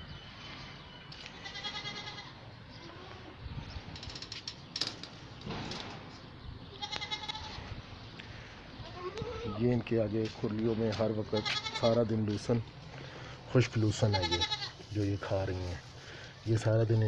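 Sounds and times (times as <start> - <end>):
goats bleating: 1.2 - 3.3, 6.7 - 7.7, 8.8 - 9.6, 11.2 - 12.0, 13.8 - 14.9.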